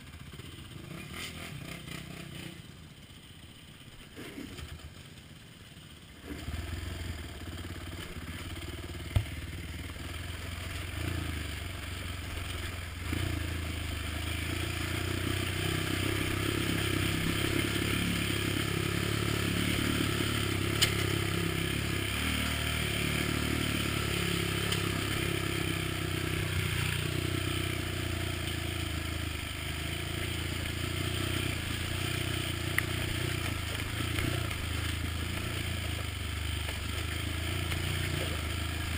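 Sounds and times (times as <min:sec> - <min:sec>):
atv engine running: 0:00.0 - 0:38.9.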